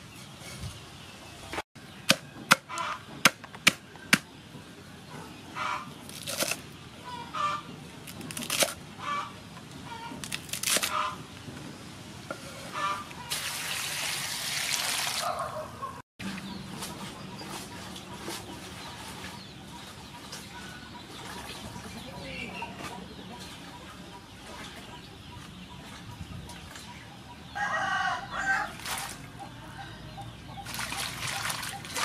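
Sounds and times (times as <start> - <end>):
cleaver chopping on wooden board: 2.0 - 4.3
poultry calling: 2.7 - 3.1, 5.1 - 6.0, 7.0 - 7.7, 9.0 - 10.2, 10.9 - 11.2, 12.7 - 13.4
water splashing in a bowl: 30.6 - 32.0.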